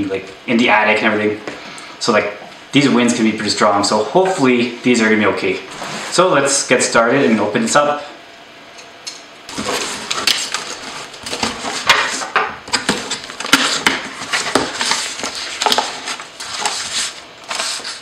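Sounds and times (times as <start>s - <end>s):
packing tape tearing: 9.5s - 18.0s
paper rustling: 9.5s - 18.0s.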